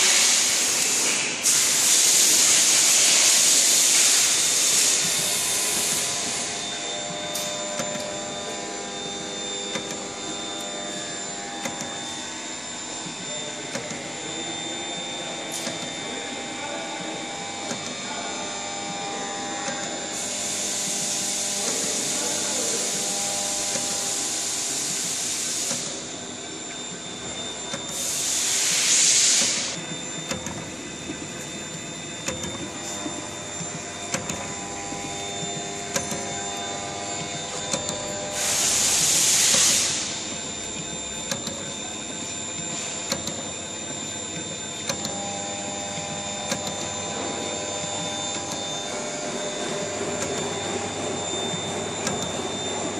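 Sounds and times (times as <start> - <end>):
machine hiss: 0.0 - 52.9
machine hum: 0.0 - 52.9.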